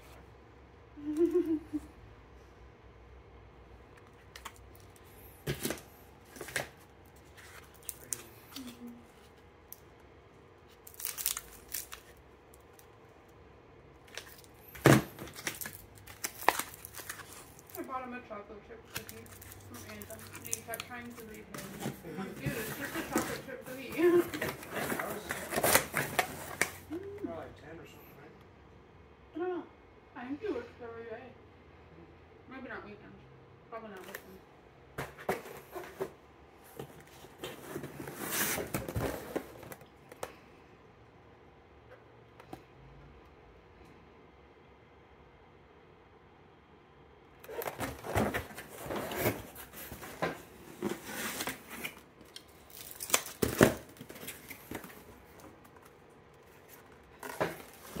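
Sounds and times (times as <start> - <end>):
plastic rustling and crinkling: 4.1 - 9.9, 10.6 - 12.9, 14.0 - 18.0, 18.9 - 27.0, 47.4 - 58.0.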